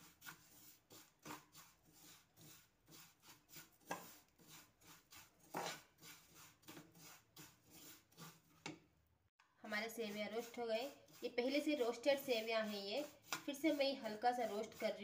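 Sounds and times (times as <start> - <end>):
spatula scraping in frying pan: 0.0 - 8.7, 9.7 - 15.0.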